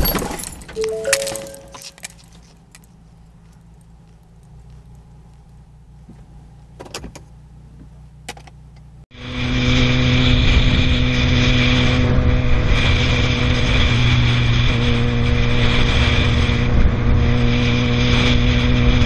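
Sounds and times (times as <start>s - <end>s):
wind and road rush: 9.2s - 19.0s.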